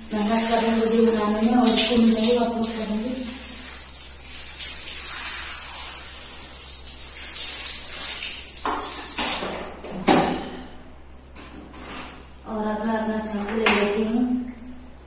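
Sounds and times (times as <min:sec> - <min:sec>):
shower spraying on hair: 0:00.0 - 0:09.8.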